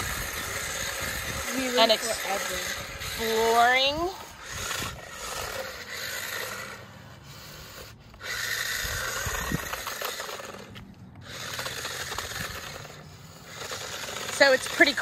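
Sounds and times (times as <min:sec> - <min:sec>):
toy motorcycle motor whirring: 0:00.0 - 0:15.0.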